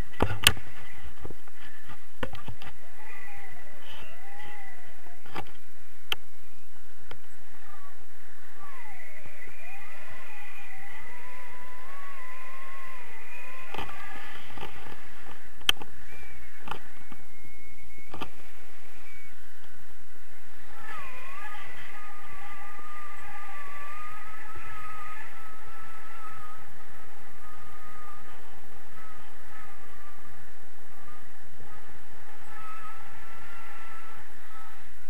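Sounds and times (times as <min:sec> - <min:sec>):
wind rushing over camera: 0:00.0 - 0:35.0
wavering whistle: 0:07.5 - 0:35.0.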